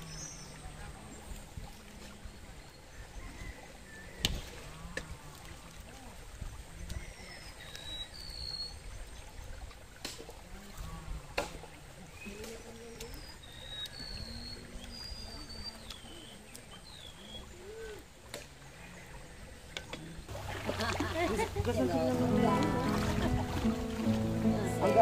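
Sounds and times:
water trickling: 4.3 - 25.0
whistled bird calls: 7.2 - 8.9, 12.2 - 18.0.

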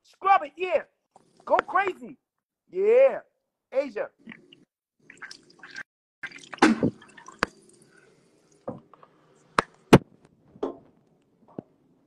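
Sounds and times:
water dripping and splashing in sink: 1.1 - 1.8, 4.2 - 9.8.

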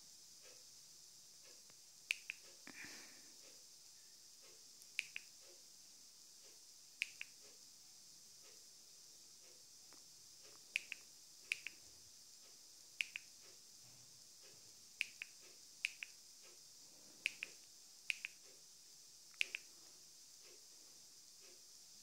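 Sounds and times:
faint steady hiss: 0.0 - 22.0
remote control button clicks: 19.4 - 19.7.

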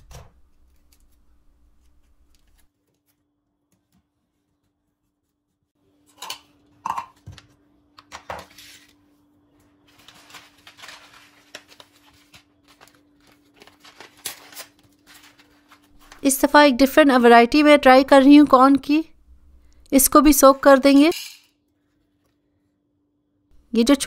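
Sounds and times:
paper packets rustling: 9.6 - 16.6.

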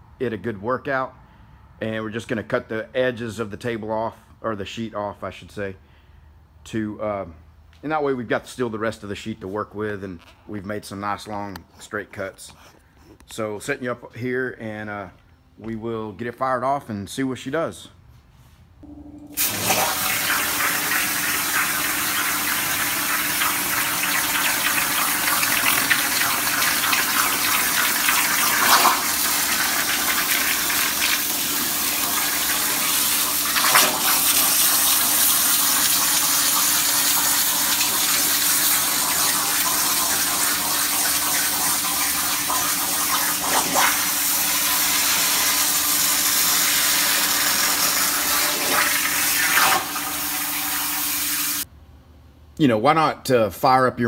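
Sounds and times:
low hum: 18.8 - 20.6.

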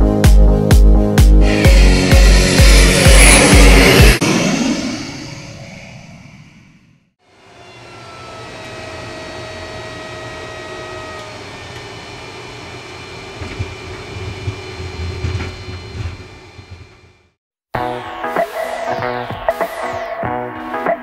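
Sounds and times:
turboprop engine drone: 0.0 - 17.4
wheels rumbling on runway: 1.5 - 17.4
faint whining tones: 4.6 - 16.9.

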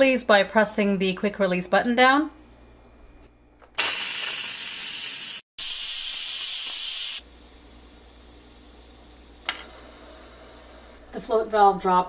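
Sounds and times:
steam hissing from valve: 3.8 - 11.0.

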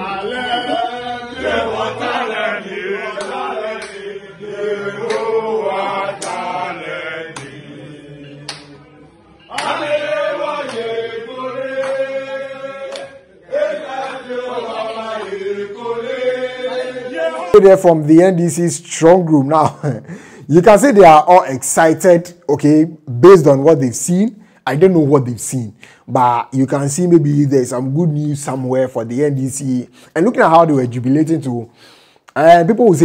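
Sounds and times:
men chanting and singing: 0.0 - 24.0
sharp claps: 3.2 - 4.0, 5.0 - 5.4, 6.1 - 6.6, 7.4 - 7.6, 8.4 - 8.8, 9.5 - 10.0, 10.6 - 11.0, 11.7 - 12.2, 12.8 - 13.2, 14.0 - 14.2.

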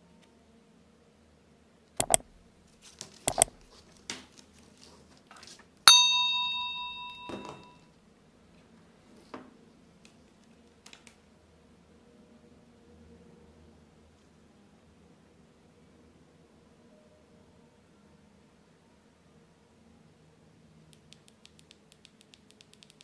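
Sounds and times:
sharp clicks: 2.0 - 2.4, 3.3 - 3.6
bell-like ding: 5.9 - 7.8.

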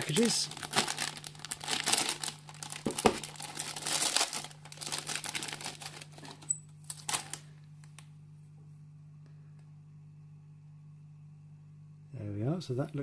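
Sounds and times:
plastic bag crinkling: 0.0 - 8.0.

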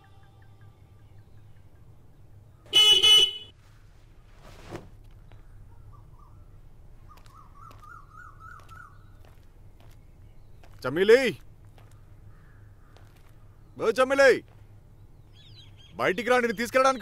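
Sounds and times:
motorcycle horn blare: 2.7 - 3.5.

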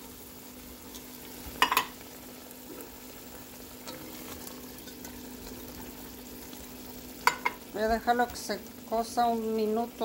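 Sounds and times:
stew sizzling in a pot: 0.0 - 10.0
spoon knocking against pot: 1.6 - 1.9, 7.2 - 7.6.

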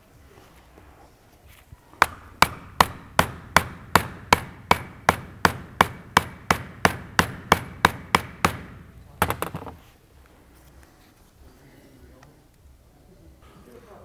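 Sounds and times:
hammer striking metal: 2.0 - 9.6.

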